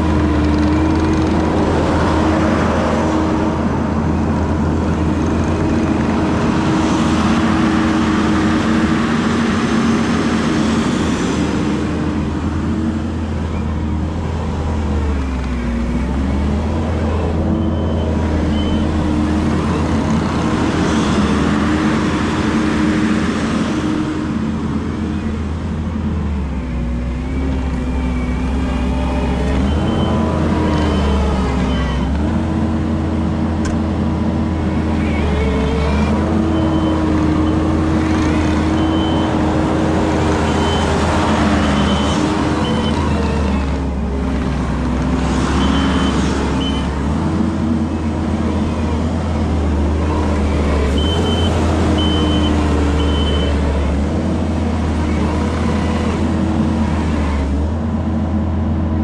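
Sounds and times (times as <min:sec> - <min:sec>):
diesel engine working under load: 0:00.0 - 0:59.0
reversing alarm beeping: 0:17.6 - 0:19.0, 0:29.6 - 0:32.1, 0:40.4 - 0:43.1, 0:45.6 - 0:47.0, 0:50.9 - 0:53.6.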